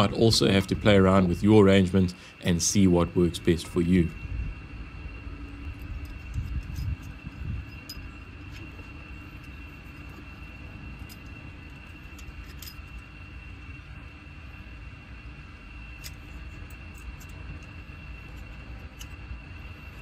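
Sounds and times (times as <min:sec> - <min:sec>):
metal fittings clinking: 0:11.0 - 0:13.0.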